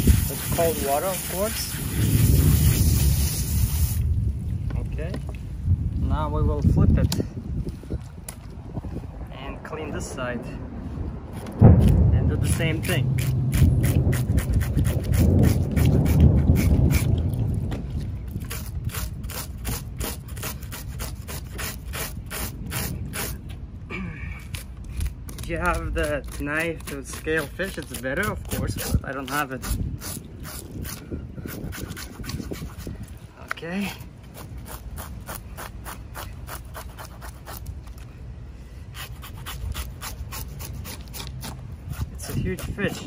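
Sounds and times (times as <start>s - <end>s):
knife scraping fish scales: 12.5s - 17.2s, 18.4s - 23.4s, 24.4s - 33.2s, 34.2s - 38.1s, 38.9s - 43.0s.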